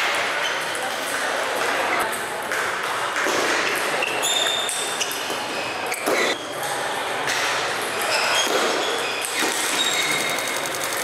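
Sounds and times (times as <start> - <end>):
hubbub of voices: 0.0 - 11.0
table tennis balls clicking: 9.2 - 11.0.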